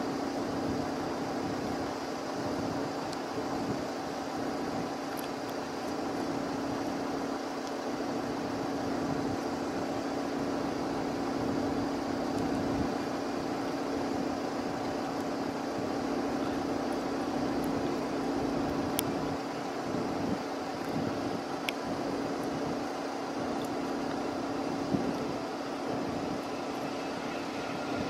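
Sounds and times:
jet engines rushing: 0.0 - 28.0.

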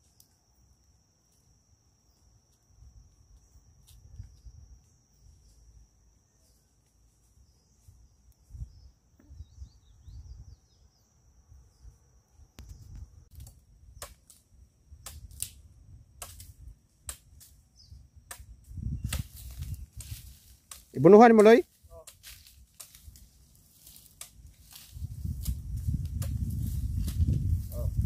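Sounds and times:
insect trill: 0.0 - 28.0
wind on microphone: 18.6 - 20.3, 24.9 - 28.0.

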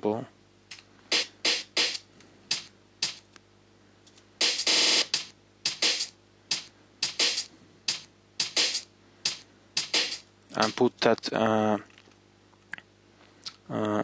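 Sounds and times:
sharp drum hits: 1.1 - 3.2, 4.4 - 10.8.

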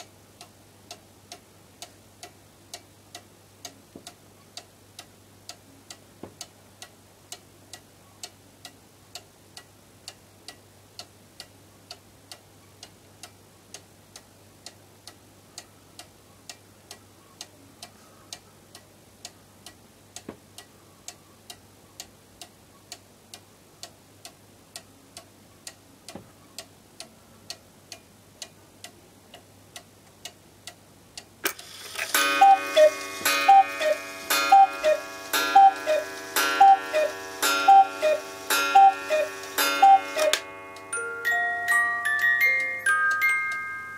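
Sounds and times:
clock ticking: 0.0 - 41.2
music box playing a tune: 31.7 - 43.9.

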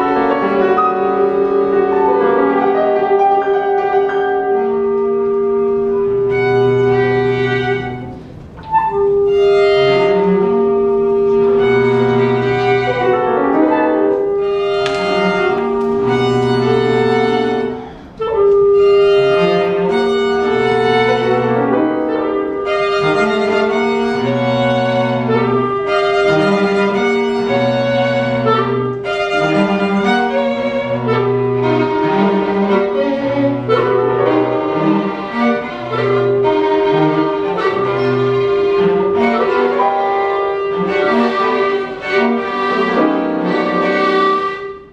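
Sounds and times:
chamber quartet playing: 0.0 - 44.9.

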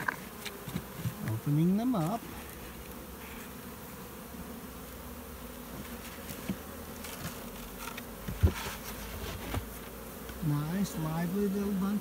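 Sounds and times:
bee swarm buzzing: 0.0 - 12.0
light knocks and thump: 7.2 - 10.4.

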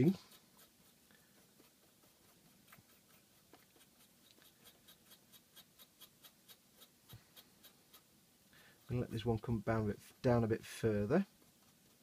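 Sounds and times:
scratchy paintbrush strokes: 0.0 - 12.0.

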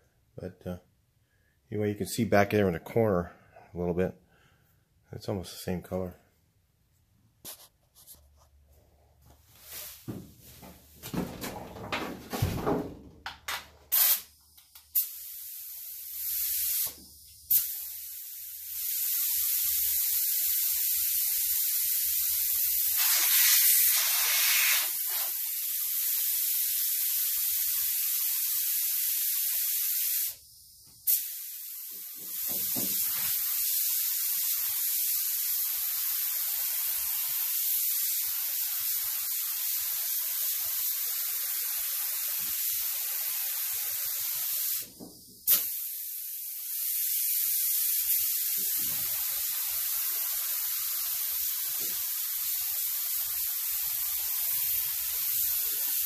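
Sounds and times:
paint spray gun hissing: 13.9 - 30.4, 31.0 - 56.0.

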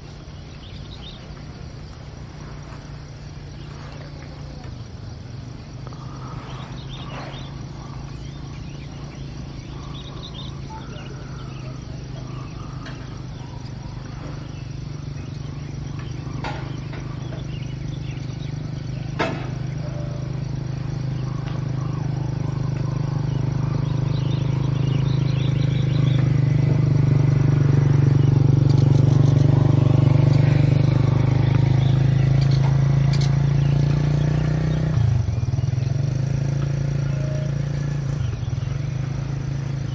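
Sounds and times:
birds chirping: 0.0 - 39.9
low engine hum: 0.0 - 39.9.

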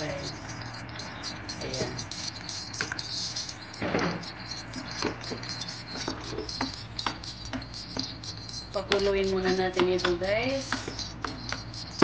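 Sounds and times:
wooden spoon stirring in a pot: 0.0 - 12.0
spoon knocking against pot: 2.8 - 12.0.

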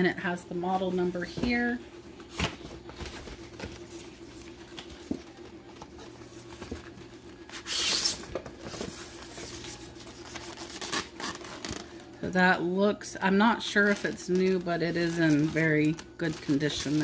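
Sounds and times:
steady low hum: 0.0 - 17.0
packing paper rustling: 2.2 - 12.2, 13.6 - 17.0.

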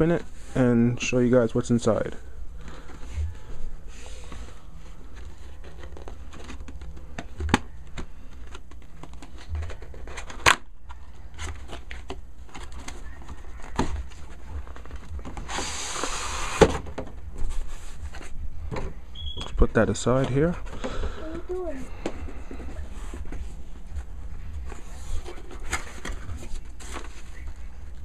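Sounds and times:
low hum: 2.2 - 15.5
card sliding: 15.3 - 16.7.

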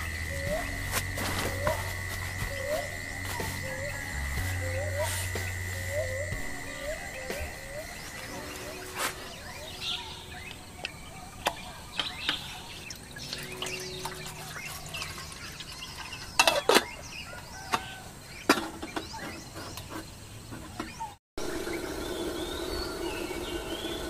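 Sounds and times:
birds chirping: 0.0 - 24.0
camping cookware clicks and knocks: 10.5 - 17.0, 17.6 - 21.0.

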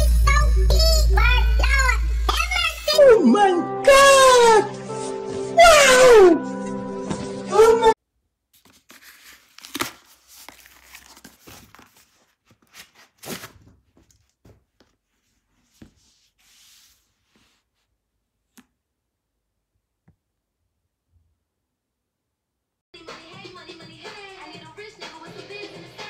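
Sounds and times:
soft rustle of handling: 8.6 - 18.0
cardboard box ripping: 8.9 - 13.8.

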